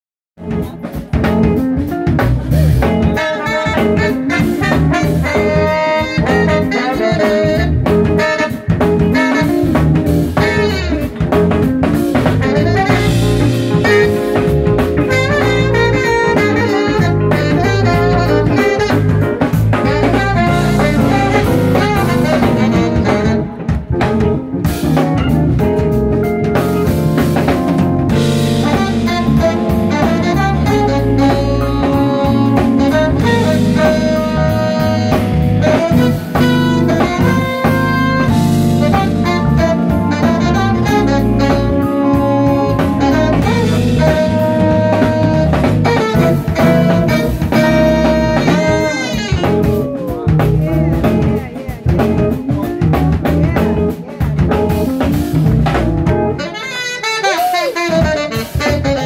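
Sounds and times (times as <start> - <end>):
drum kit: 0.4 - 59.0
guitar: 0.4 - 59.0
keyboard: 0.4 - 59.0
saxophone: 0.4 - 59.0
trombone: 0.4 - 59.0.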